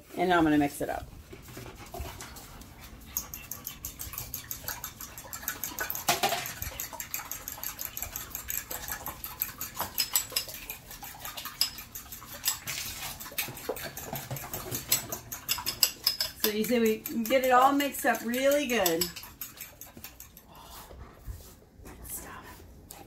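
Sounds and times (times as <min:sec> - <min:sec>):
utensil clicking against glass bowl: 0:14.9 - 0:20.3.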